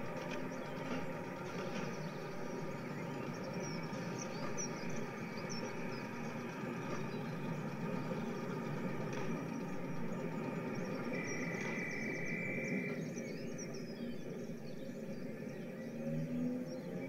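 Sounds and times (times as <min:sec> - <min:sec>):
train running: 0:00.0 - 0:17.0.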